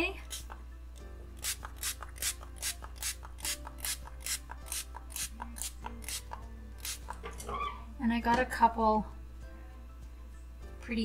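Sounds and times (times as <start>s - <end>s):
spray bottle spritzing: 1.4s - 6.2s.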